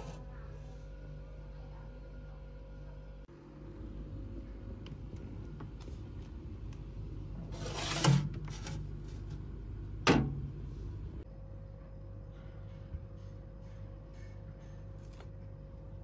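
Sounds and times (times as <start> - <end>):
fridge humming: 0.0 - 12.3
glass jar scraping on shelf: 7.5 - 8.8.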